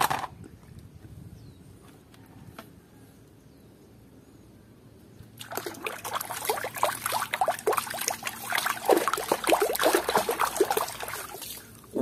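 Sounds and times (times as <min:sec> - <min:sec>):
water splashing and swishing: 0:05.4 - 0:11.9
hand scrubbing toy under water: 0:05.5 - 0:11.8.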